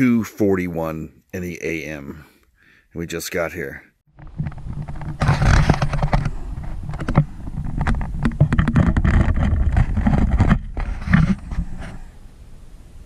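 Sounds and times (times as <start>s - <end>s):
engine and road rumble: 4.1s - 13.0s.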